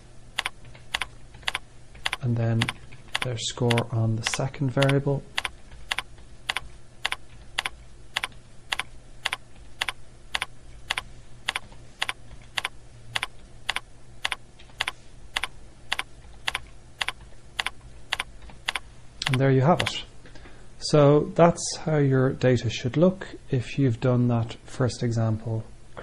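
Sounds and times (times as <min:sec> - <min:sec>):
faint low hum: 0:00.0 - 0:26.0
keyboard keystrokes: 0:00.4 - 0:19.9.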